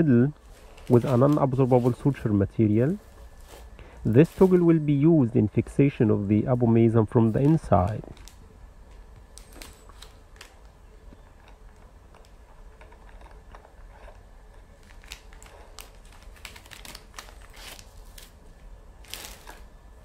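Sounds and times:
low steady hum: 0.0s - 20.0s
plastic packet crinkling: 0.4s - 4.7s, 7.2s - 19.7s.

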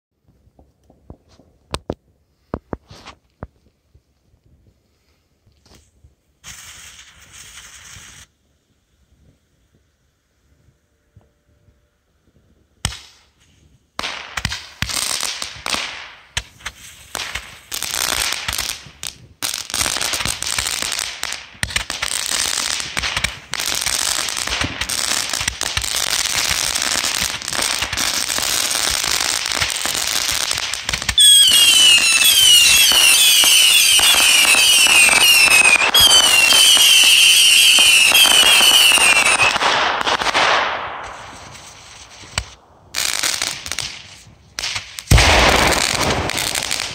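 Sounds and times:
firework crackling: 5.0s - 9.9s, 12.8s - 46.9s
warbling firework whistles: 31.1s - 40.2s.

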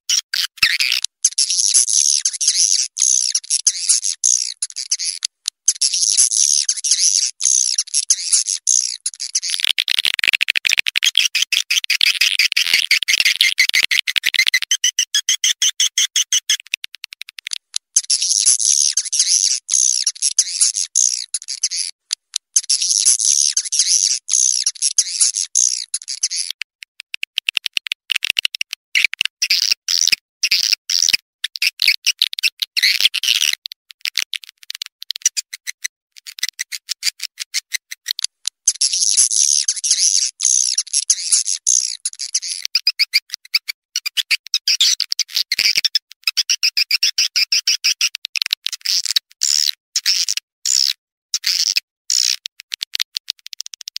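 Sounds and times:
high clicky bird chirps: 0.1s - 33.7s, 34.4s - 53.9s
shrill bird twittering: 0.6s - 9.6s, 18.0s - 22.0s, 22.6s - 26.5s, 38.7s - 45.0s.

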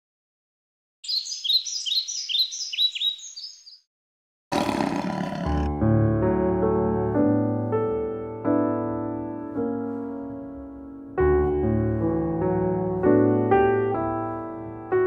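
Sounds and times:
piano music: 5.4s - 15.0s.

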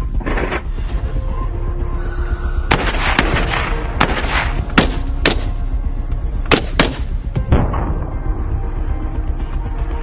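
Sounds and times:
rifle shots with echo: 2.7s - 5.6s, 6.5s - 7.9s.

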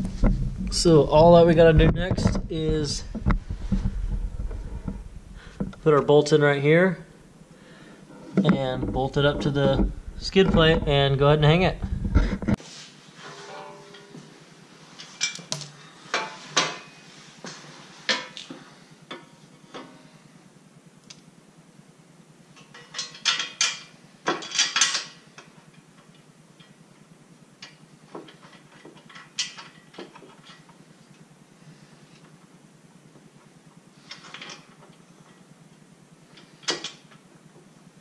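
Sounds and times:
metal parts rattling: 22.8s - 25.2s.

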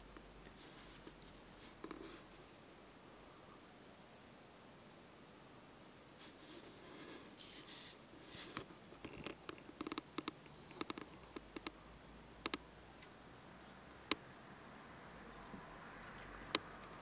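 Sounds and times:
low hiss: 0.0s - 17.0s
sharp clicks and light taps: 8.5s - 11.8s, 12.4s - 13.2s, 16.2s - 17.0s.

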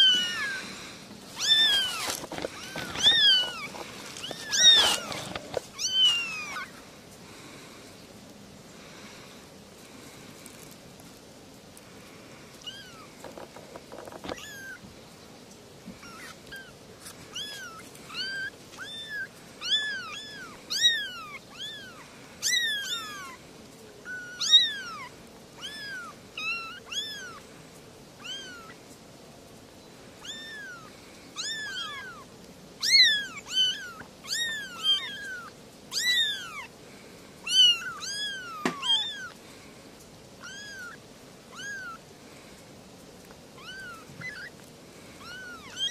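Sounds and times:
kittens meowing: 0.0s - 6.8s, 12.6s - 13.4s, 14.0s - 14.8s, 15.9s - 23.4s, 24.0s - 27.4s, 28.2s - 28.8s, 30.2s - 36.7s, 37.4s - 39.4s, 40.4s - 42.0s, 43.6s - 44.6s, 45.2s - 45.9s.

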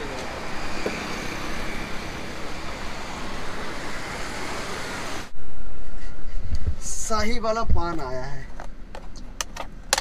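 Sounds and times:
cars and motorbikes passing: 0.0s - 5.4s.

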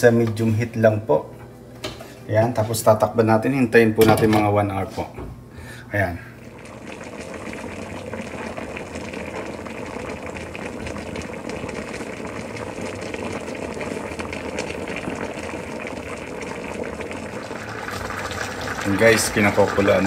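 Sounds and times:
coconut milk simmering in a pot: 6.0s - 20.0s.

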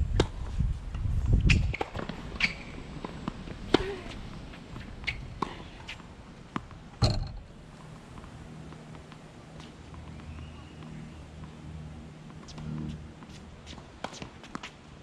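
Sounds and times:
racket striking tennis ball: 4.8s - 7.7s
ball bouncing on hard court: 7.0s - 7.6s.

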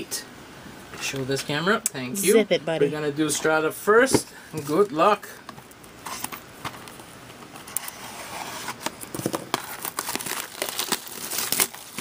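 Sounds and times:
plastic shrink-wrap tearing and crinkling: 8.9s - 12.0s.

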